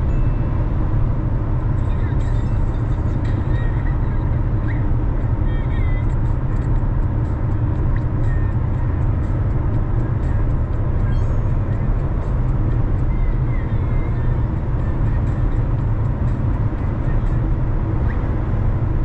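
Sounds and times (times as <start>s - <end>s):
car driving rumble: 0.0s - 19.0s.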